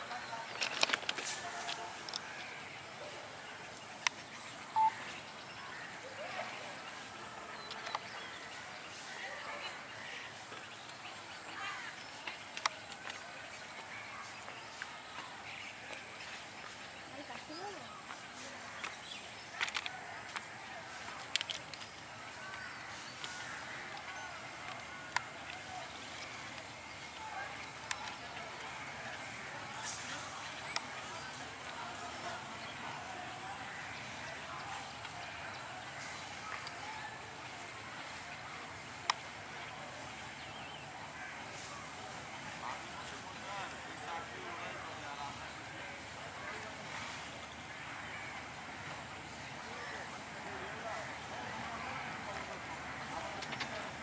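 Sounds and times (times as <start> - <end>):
far-off voices: 0.0 - 54.0
insects buzzing: 0.0 - 54.0
faint bird chirps: 2.2 - 18.1.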